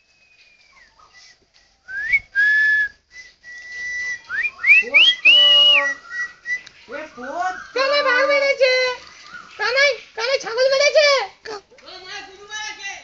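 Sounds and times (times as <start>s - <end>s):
whistled notes: 0.0s - 7.8s.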